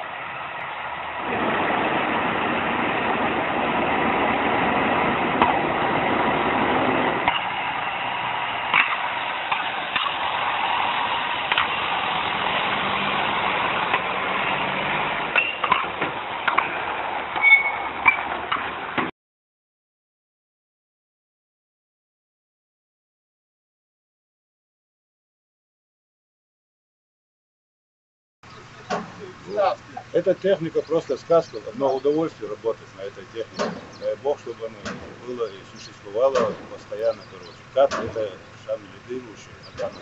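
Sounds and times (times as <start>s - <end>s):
truck diesel engine running: 0.0s - 19.0s, 28.4s - 40.0s
short squeaks: 17.4s - 18.3s
clicks and clanks: 28.9s - 29.2s, 33.5s - 34.0s, 34.8s - 38.4s.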